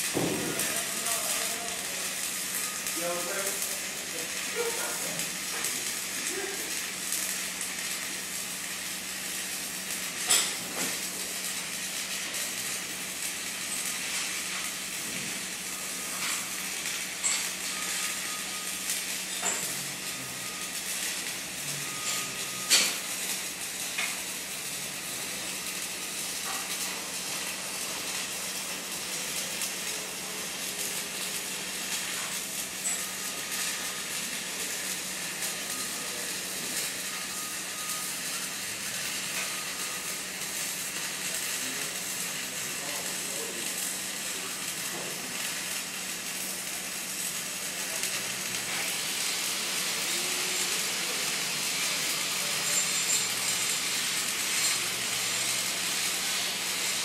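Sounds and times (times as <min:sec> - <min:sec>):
welding arc crackling: 0:00.0 - 0:57.0.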